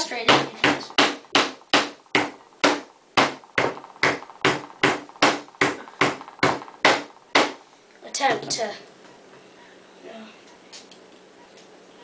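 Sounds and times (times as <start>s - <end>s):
chisel chopping into wood: 0.3s - 7.6s.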